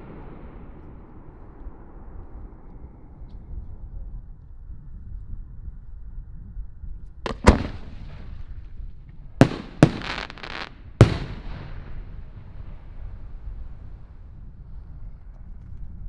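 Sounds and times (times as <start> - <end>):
fireworks bangs with echo: 7.3 - 8.3, 9.4 - 13.6
firework hiss: 9.4 - 14.0.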